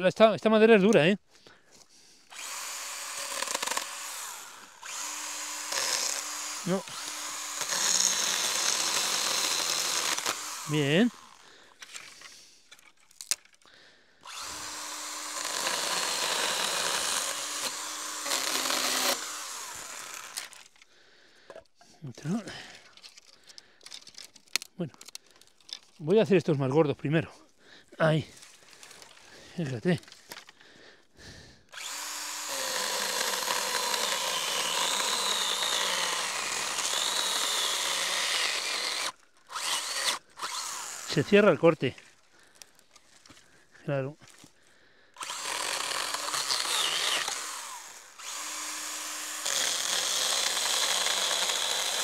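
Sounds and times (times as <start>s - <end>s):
cordless chainsaw cutting branch: 2.3s - 12.4s, 14.2s - 20.9s, 31.7s - 43.3s, 45.2s - 52.0s.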